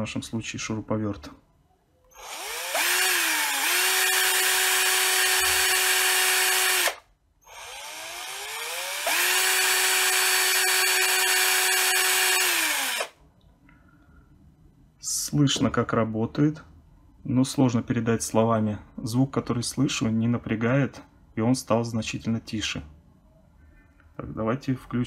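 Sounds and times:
cordless drill whining: 0:02.1 - 0:13.2.

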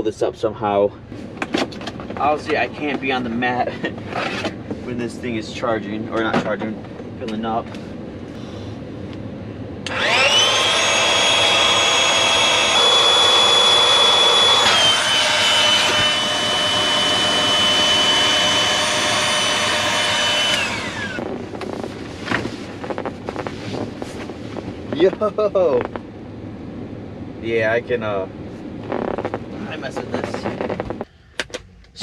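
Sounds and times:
electric air pump whining: 0:09.8 - 0:26.0.

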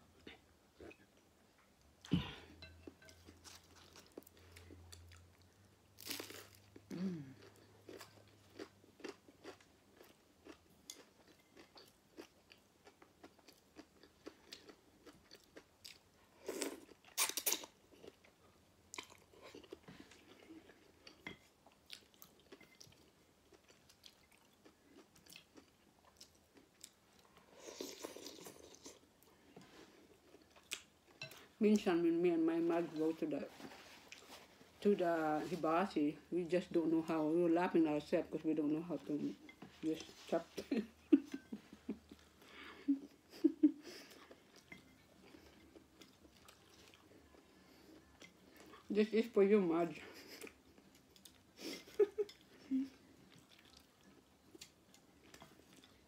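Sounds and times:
chewing and crunching: 0:02.8 - 0:31.6, 0:43.9 - 0:48.9, 0:50.1 - 0:56.0.

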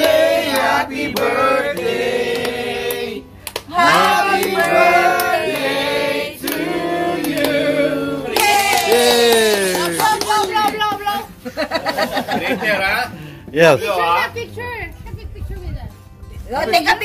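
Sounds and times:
hand clapping: 0:00.0 - 0:05.8, 0:06.4 - 0:07.6, 0:08.3 - 0:11.0
group singing together: 0:00.0 - 0:10.3.

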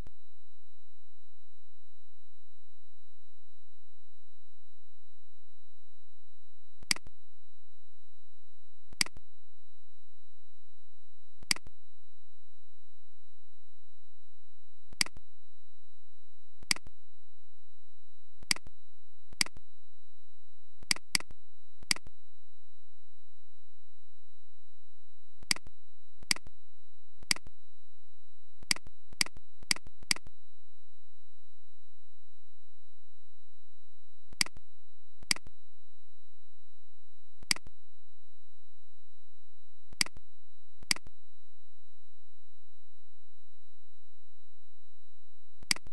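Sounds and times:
faint high whine: 0:00.0 - 0:45.9
faint high-pitched tone: 0:00.0 - 0:45.9
computer mouse clicks: 0:06.8 - 0:07.1, 0:09.0 - 0:09.2, 0:15.0 - 0:15.2, 0:19.4 - 0:19.6, 0:20.9 - 0:22.1, 0:28.6 - 0:30.3, 0:34.4 - 0:34.6, 0:35.2 - 0:35.5, 0:37.4 - 0:37.7, 0:40.0 - 0:40.2, 0:45.6 - 0:45.9
mouse button clicks: 0:06.8 - 0:07.1, 0:09.0 - 0:09.2, 0:11.4 - 0:11.7, 0:15.0 - 0:15.2, 0:20.9 - 0:22.1, 0:45.7 - 0:45.9.

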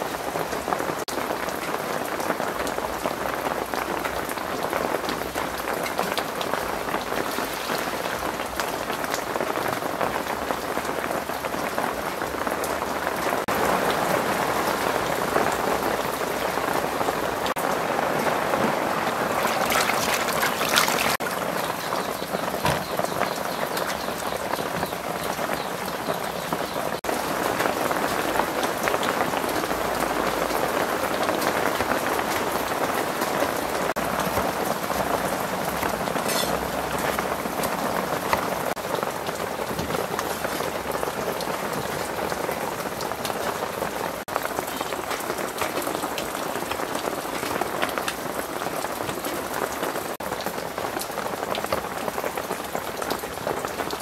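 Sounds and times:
heavy rain falling: 0:00.0 - 0:54.0
shellfish rubbed in water: 0:19.3 - 0:21.2.

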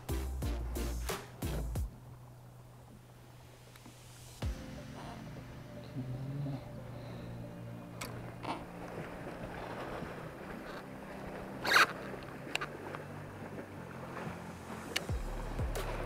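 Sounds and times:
water lapping against plastic hull: 0:08.0 - 0:16.0.

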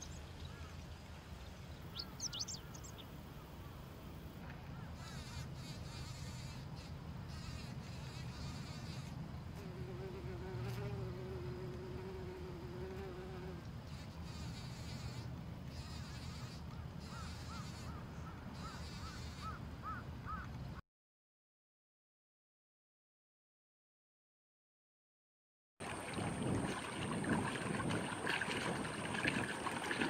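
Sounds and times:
bird chirping: 0:01.9 - 0:03.1
fly buzzing: 0:05.0 - 0:18.0, 0:18.6 - 0:20.0
low wind rumble: 0:25.8 - 0:30.0.

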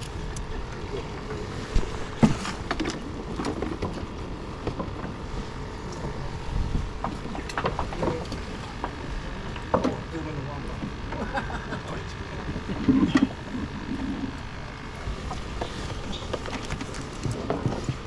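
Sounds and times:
wind on microphone: 0:06.1 - 0:07.5.

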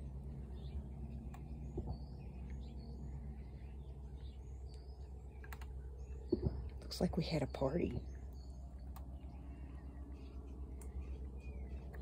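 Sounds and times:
low outdoor hum: 0:00.0 - 0:12.0
small birds chirping: 0:00.0 - 0:12.0
soft clicks: 0:01.2 - 0:02.6, 0:04.6 - 0:05.8, 0:08.7 - 0:09.2, 0:10.7 - 0:12.0.

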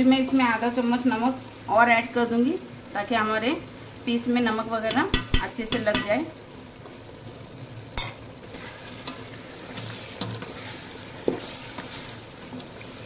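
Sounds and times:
food sizzling in a pot: 0:00.0 - 0:13.0
spatula scraping through food: 0:08.5 - 0:13.0.

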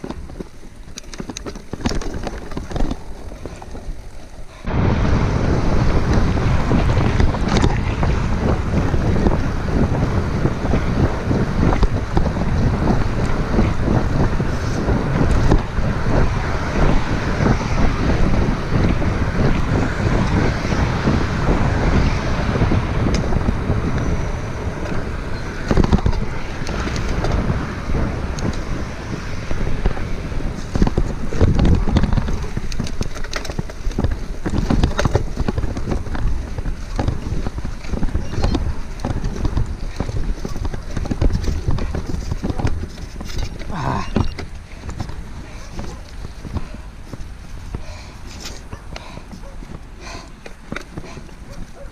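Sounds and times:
wind rushing over microphone: 0:00.0 - 0:51.9.

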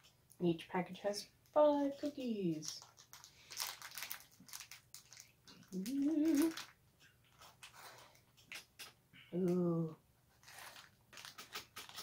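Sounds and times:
plastic wrapper crinkling: 0:01.4 - 0:09.0, 0:10.4 - 0:12.0.

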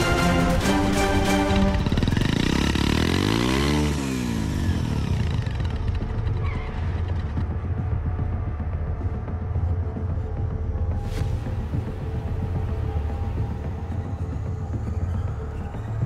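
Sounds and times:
motorcycle engine revving: 0:00.1 - 0:08.2
motorcycle engine idling: 0:01.4 - 0:08.3.

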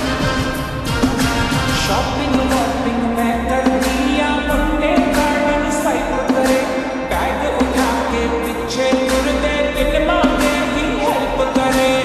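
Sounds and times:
slowed reverb pop song: 0:00.0 - 0:12.0.

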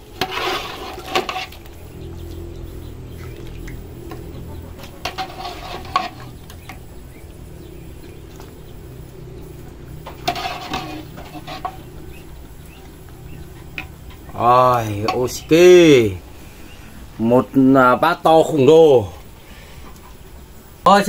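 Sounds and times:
hen clucking: 0:01.5 - 0:15.5
pot and utensils clinking: 0:10.0 - 0:11.9.

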